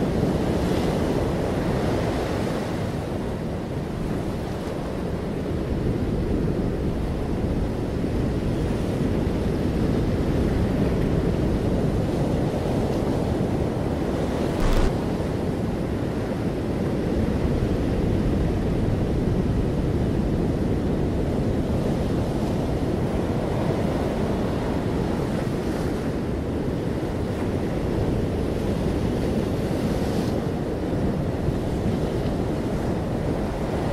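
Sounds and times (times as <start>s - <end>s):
wind buffeting microphone: 14.4s - 15.9s.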